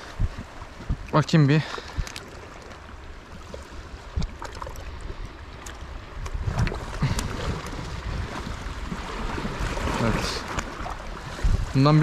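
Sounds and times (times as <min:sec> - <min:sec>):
sea water washing at shore: 0:00.0 - 0:12.0.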